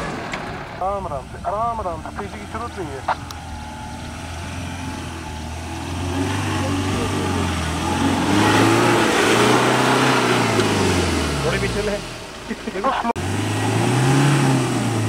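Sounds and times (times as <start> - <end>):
diesel engine revving: 0.0 - 15.0.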